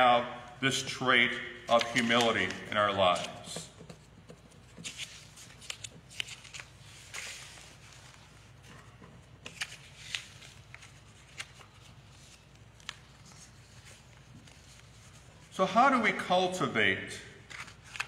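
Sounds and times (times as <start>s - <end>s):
paper rustling and clicking: 1.7s - 14.9s, 17.5s - 18.0s.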